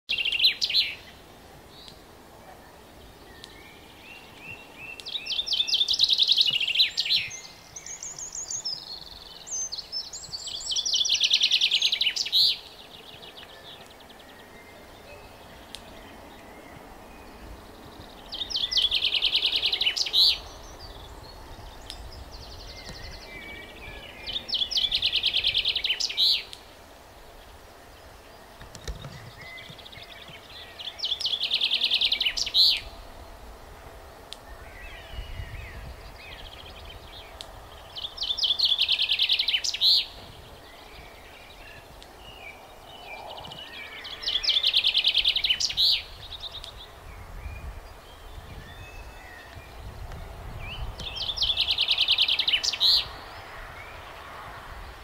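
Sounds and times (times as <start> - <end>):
chaffinch song trills: 0.1 - 28.6, 29.3 - 33.2
soft bird chirps: 0.1 - 33.0, 34.4 - 54.9.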